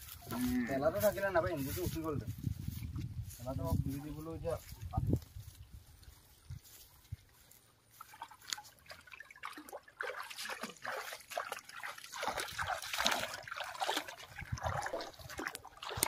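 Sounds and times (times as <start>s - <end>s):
muddy water sloshing: 4.6s - 16.0s.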